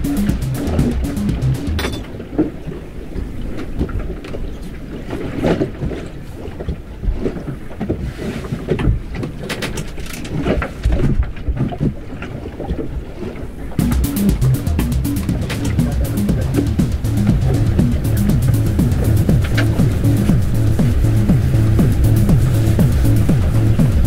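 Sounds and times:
water rushing along hull: 0.0 - 24.0
low knocks: 13.8 - 24.0.

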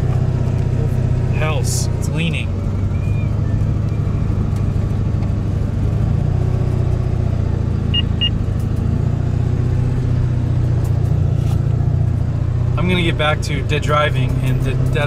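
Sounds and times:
truck engine and road hum: 0.0 - 15.0
short high beeps: 7.9 - 8.4.

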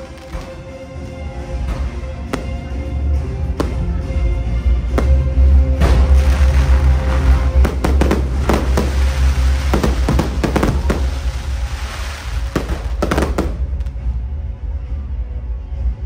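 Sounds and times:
fireworks bangs: 2.3 - 2.8, 3.6 - 3.9, 4.9 - 14.0.

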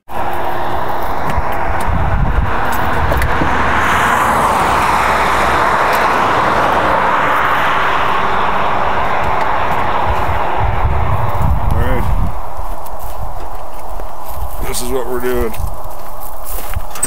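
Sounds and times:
loud rushing noise: 0.0 - 13.4
low rumble: 0.1 - 14.7.

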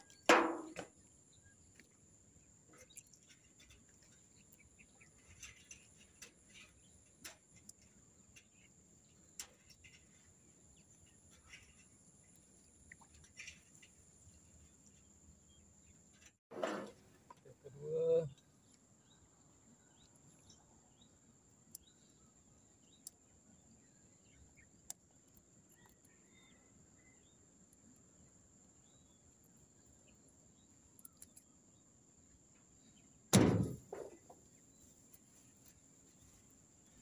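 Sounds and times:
faint bird chirps: 25.7 - 27.4
loud sudden thump: 33.3 - 34.2.

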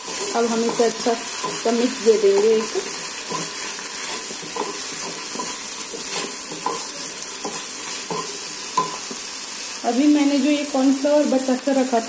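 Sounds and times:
wooden spatula scraping pan: 0.0 - 9.3
vegetables sizzling in frying pan: 0.0 - 12.0.

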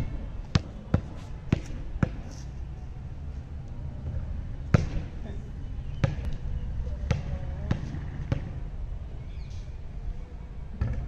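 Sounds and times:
basketball bouncing on concrete: 0.0 - 2.2, 4.7 - 5.1, 6.0 - 6.4, 7.1 - 8.6.

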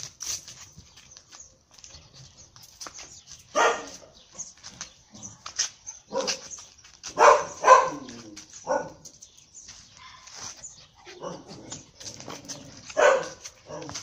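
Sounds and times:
puppy barking: 3.5 - 4.0, 6.1 - 6.4, 7.1 - 9.1, 11.1 - 11.7, 12.8 - 14.0.

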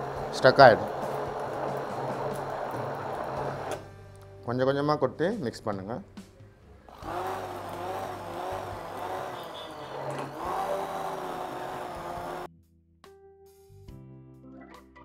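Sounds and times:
hand blender motor whine: 0.0 - 3.9, 6.9 - 12.5.

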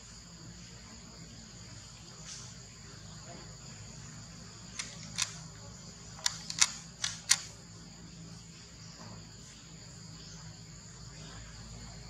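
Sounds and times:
sharp clicks: 4.8 - 5.4, 6.2 - 7.5.

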